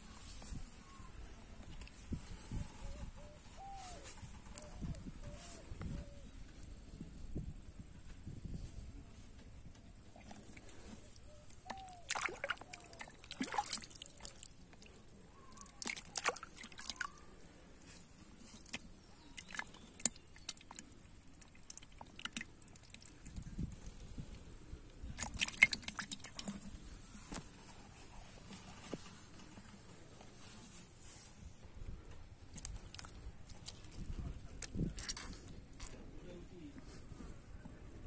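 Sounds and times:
hands squelching in wet mud: 10.0s - 27.6s, 32.4s - 36.0s.

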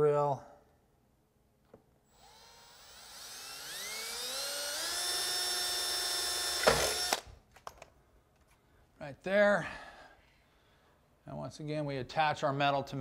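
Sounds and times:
cordless drill whining: 2.1s - 7.3s.

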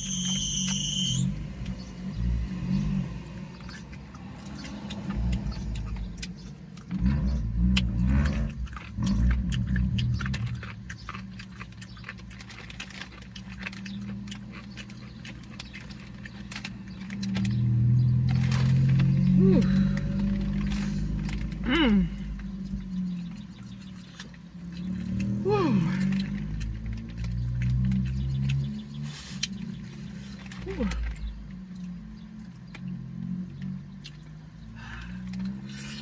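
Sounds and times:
chewing with wet mouth clicks: 3.2s - 19.1s, 22.2s - 33.0s, 33.6s - 34.6s.

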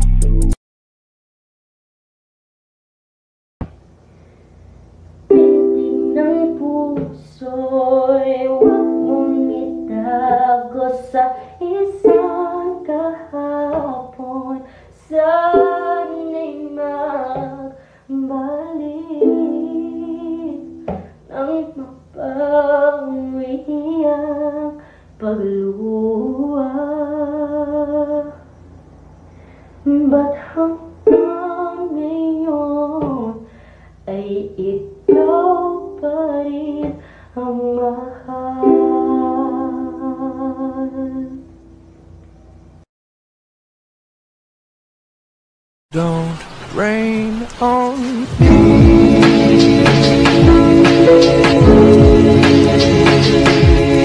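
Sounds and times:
ukulele strumming: 5.3s - 7.3s, 8.4s - 10.7s, 12.0s - 13.9s, 15.5s - 16.6s, 19.1s - 21.2s, 31.0s - 31.9s, 35.0s - 36.1s, 38.6s - 40.3s, 46.0s - 54.0s
person singing slow melody: 5.3s - 28.5s, 29.8s - 41.8s, 45.9s - 54.0s.

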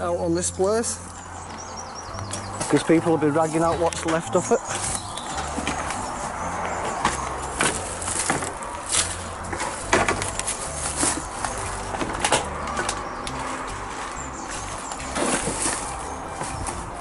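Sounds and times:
footsteps crunching through leaves: 1.6s - 17.0s
twigs snapping: 7.0s - 13.5s.

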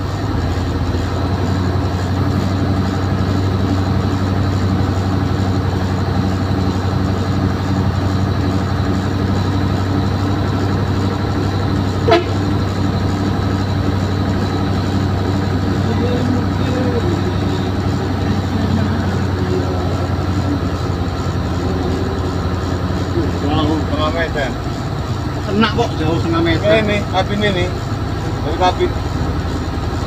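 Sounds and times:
truck diesel engine running: 0.0s - 30.0s
short horn toot: 12.1s - 12.5s.

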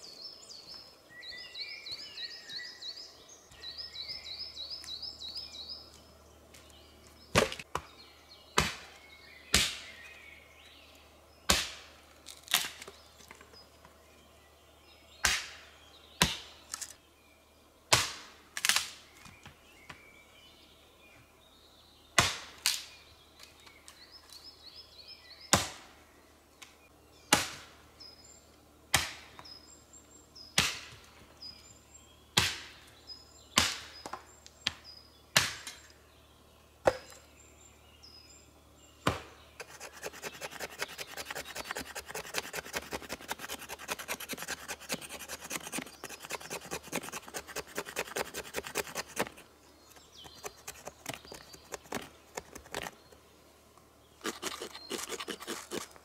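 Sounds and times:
axe chopping wood: 8.6s - 8.9s, 9.5s - 9.8s, 11.5s - 11.9s
fast dense scraping: 39.6s - 53.0s, 54.2s - 55.9s.

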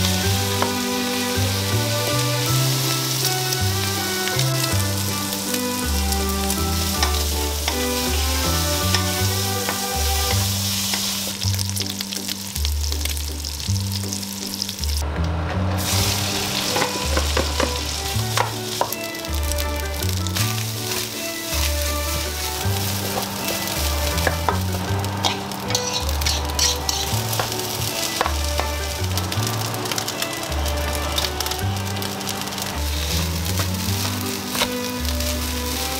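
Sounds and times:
wooden spatula scraping and tapping: 0.0s - 0.9s, 5.9s - 11.1s, 16.7s - 29.0s, 33.2s - 35.9s
meat sizzling in a wok: 0.0s - 15.0s, 15.8s - 35.9s
background music with bass line: 0.0s - 35.9s.

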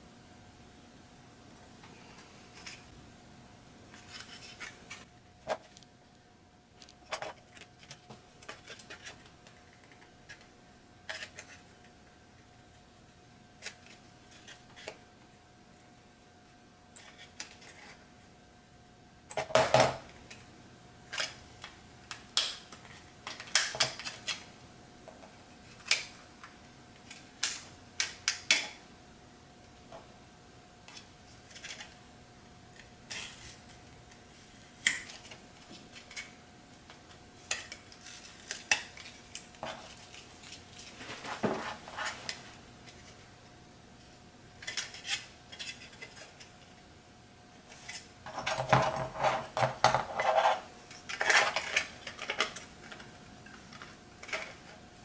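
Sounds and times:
tape peeling and rustling: 37.4s - 43.3s.

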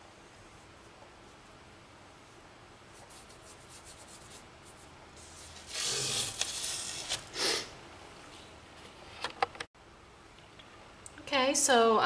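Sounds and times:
brush strokes on board: 2.2s - 6.1s.

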